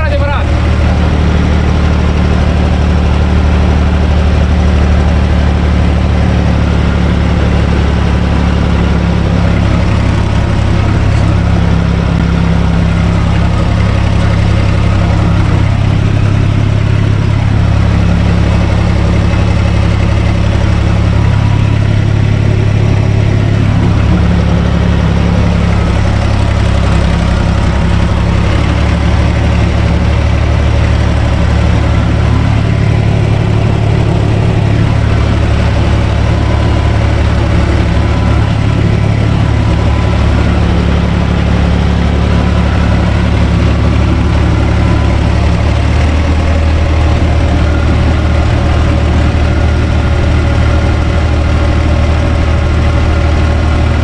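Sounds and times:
tractor diesel engine under load: 0.0s - 54.0s.

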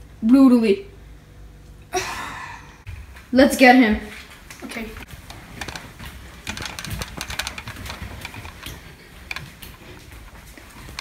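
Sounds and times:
footsteps hurrying up stairs: 5.0s - 11.0s.

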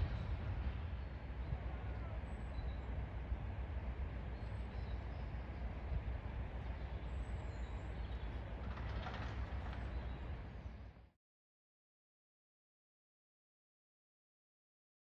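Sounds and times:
diesel locomotive engine rumble: 0.0s - 11.2s.

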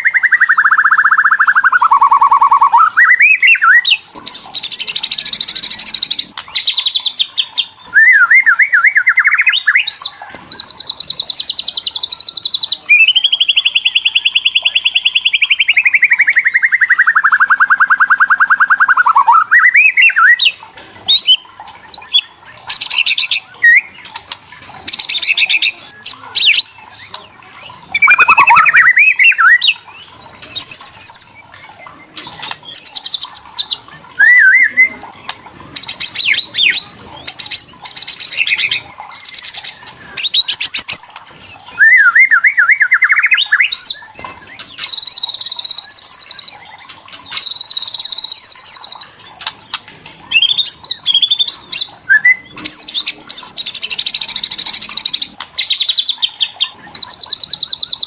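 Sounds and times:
bird whistled phrases: 0.0s - 6.0s, 7.8s - 21.4s, 27.9s - 29.8s, 34.2s - 35.1s, 41.7s - 44.2s, 50.1s - 56.1s
high buzzy bird trills: 0.0s - 58.0s.

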